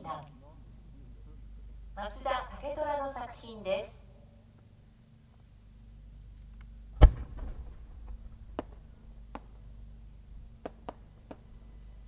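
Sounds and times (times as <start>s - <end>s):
sharp firework pops: 7.0s - 9.6s, 10.6s - 11.5s
firework shell mortar boom: 7.0s - 9.7s.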